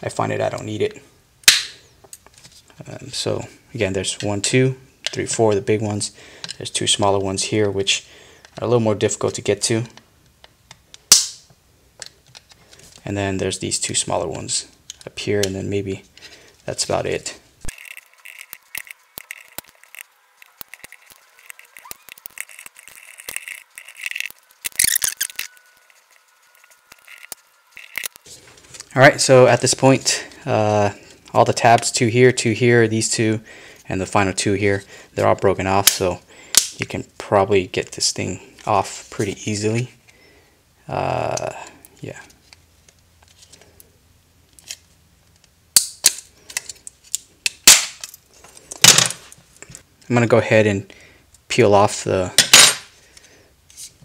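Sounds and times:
plastic tabs cracking: 0:17.7 - 0:28.3
screwdriver scraping plastic: 0:17.7 - 0:28.3.

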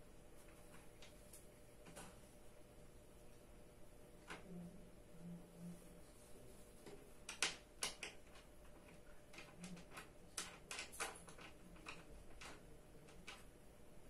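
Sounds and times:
clicks and light knocks: 0:06.8 - 0:13.5.

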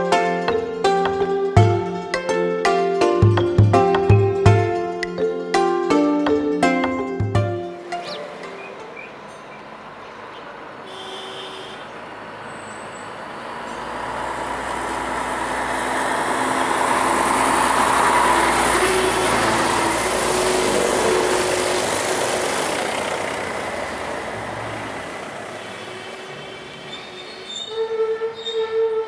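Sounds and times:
road vehicle passing: 0:07.6 - 0:29.0.

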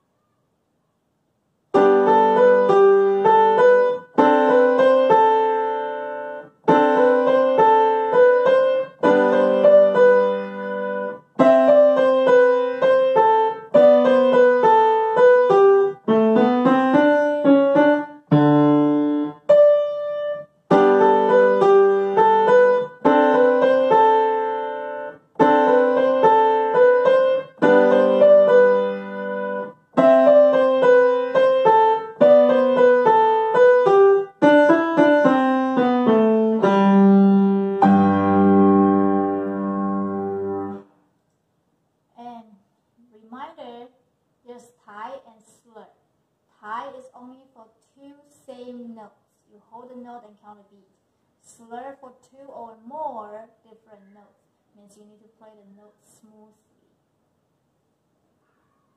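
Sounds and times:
grand piano playing: 0:01.8 - 0:40.8.

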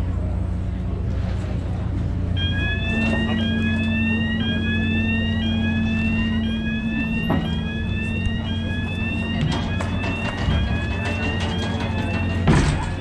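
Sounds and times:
ferry engine hum: 0:00.0 - 0:13.0
electronic warning signal sweep: 0:02.4 - 0:12.4.

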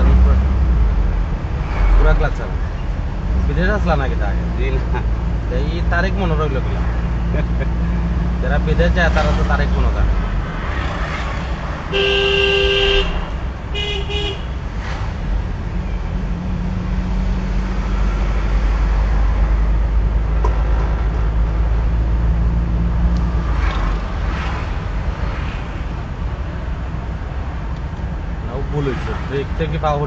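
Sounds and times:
car engine and tyres drone: 0:00.0 - 0:30.0
vehicle horn honking: 0:11.9 - 0:14.6.

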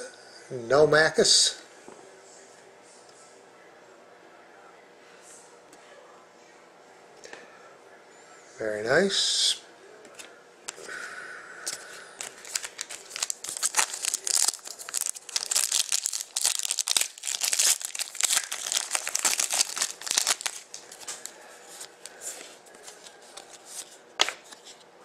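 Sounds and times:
card pack wrapper tearing and crinkling: 0:12.2 - 0:22.1.

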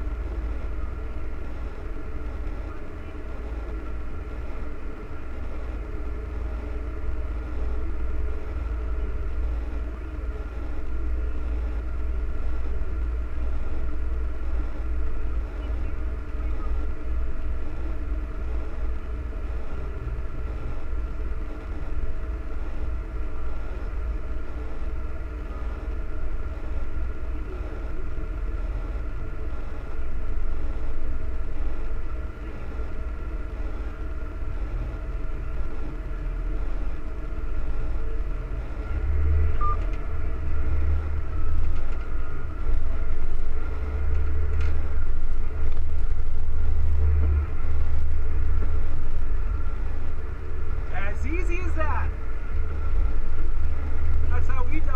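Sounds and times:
tractor diesel engine running: 0:00.0 - 0:54.9.

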